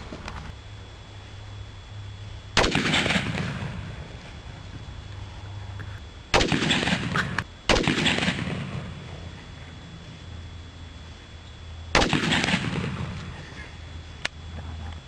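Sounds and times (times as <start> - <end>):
gunshots: 2.6 - 4.1, 6.3 - 9.1, 12.0 - 13.4.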